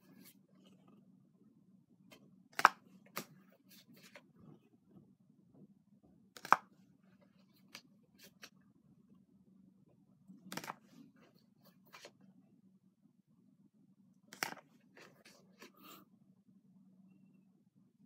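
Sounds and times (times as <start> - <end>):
low steady hum: 0.0 - 18.0
trading cards snapping: 2.6 - 3.3, 6.4 - 6.7, 10.5 - 10.8, 14.4 - 14.6.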